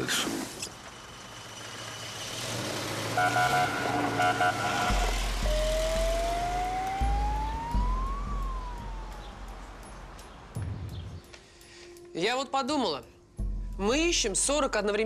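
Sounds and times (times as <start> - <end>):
siren beeps: 3.2 - 9.2
siren wail: 3.2 - 9.6.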